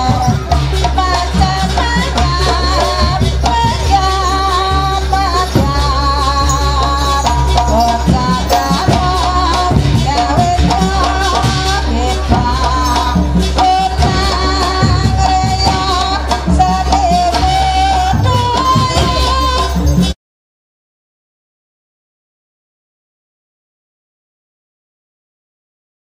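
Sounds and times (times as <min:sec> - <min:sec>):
drums and clattering percussion: 0:00.0 - 0:20.2.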